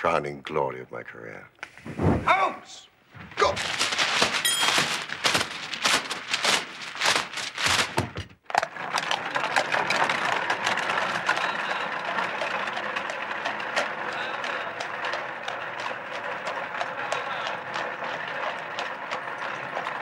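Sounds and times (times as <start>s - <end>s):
paper burning with sharp crackles: 3.1s - 8.3s
paper rustling: 3.2s - 8.4s
horse-drawn cab rolling on street: 3.4s - 20.0s.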